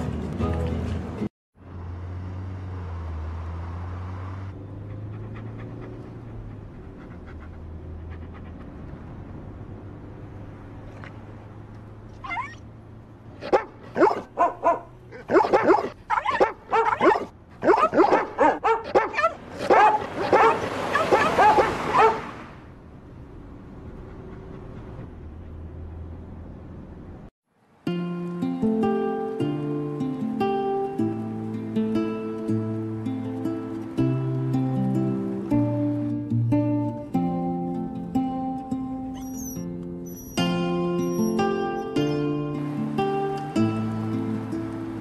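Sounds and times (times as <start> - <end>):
dogs barking: 12.2 - 12.6, 13.4 - 22.3.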